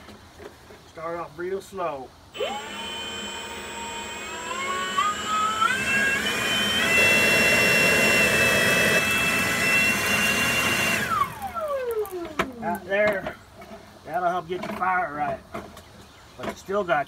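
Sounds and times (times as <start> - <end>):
leaf blower whining: 2.3 - 13.9.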